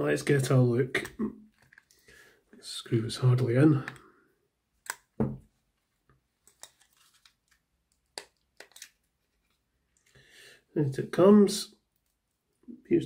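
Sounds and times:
screwdriver and plastic clicks: 0:04.8 - 0:05.2, 0:07.9 - 0:09.0.

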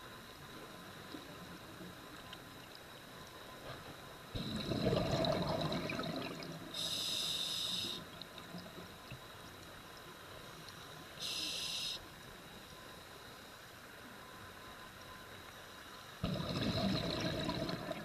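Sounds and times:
exhaled bubbles gurgling: 0:04.4 - 0:07.0, 0:16.2 - 0:18.0
regulator inhalation hiss: 0:06.8 - 0:08.1, 0:11.2 - 0:12.1.

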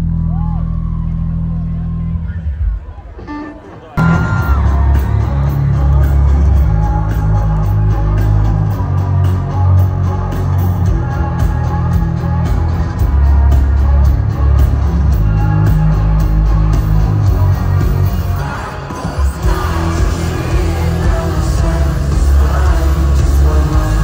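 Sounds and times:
heavy bass line: 0:00.0 - 0:03.4, 0:04.0 - 0:24.0
steady drum beat: 0:04.0 - 0:24.0.

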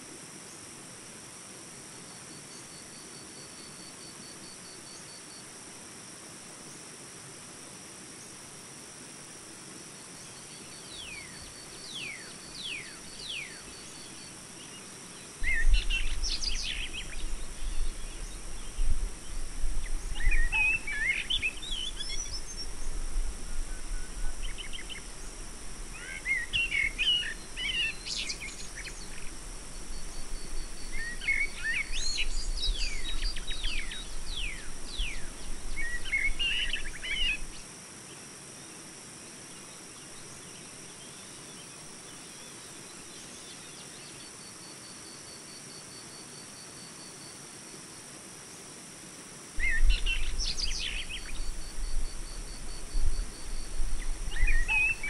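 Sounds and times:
birds chirping: 0:53.4 - 0:55.0.

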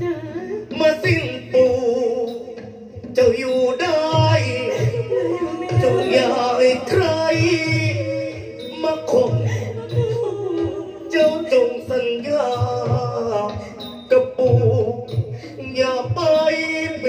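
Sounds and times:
band accompaniment: 0:00.0 - 0:17.0
low drum beats: 0:00.0 - 0:17.0
man singing through a microphone: 0:00.0 - 0:17.0.

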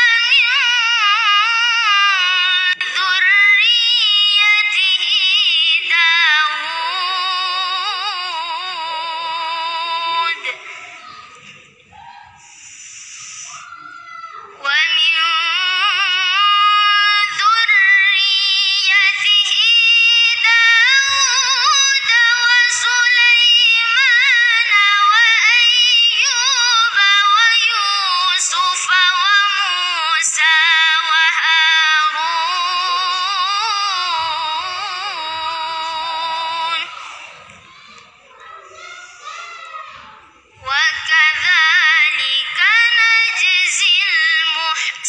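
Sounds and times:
boy reciting melodically: 0:00.0 - 0:45.0.

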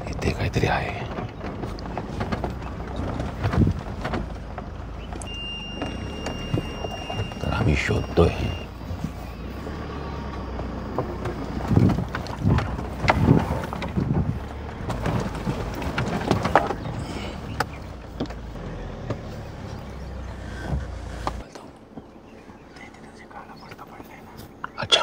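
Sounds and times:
sharp knocks and rattles: 0:00.0 - 0:22.1
vehicle engine rumbling: 0:00.0 - 0:25.0
wind on microphone: 0:11.6 - 0:14.5.

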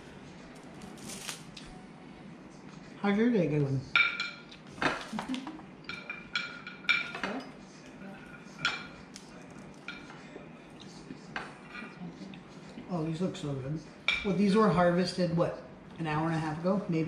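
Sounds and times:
cutlery and dishes clinking: 0:03.9 - 0:12.0.

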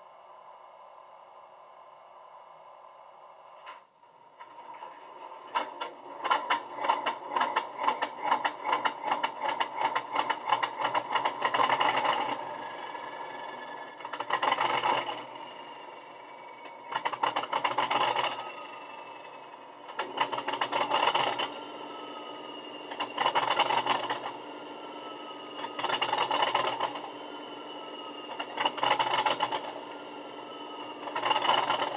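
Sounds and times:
diesel engine through small speaker: 0:04.4 - 0:31.9
faint falling whistles: 0:21.6 - 0:31.7.

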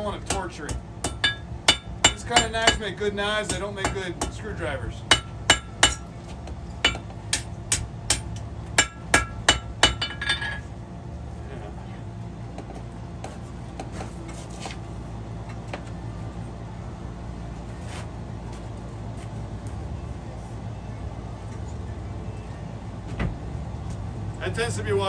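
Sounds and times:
hammer striking steel on anvil: 0:00.0 - 0:04.5, 0:05.1 - 0:06.1, 0:06.8 - 0:10.6.

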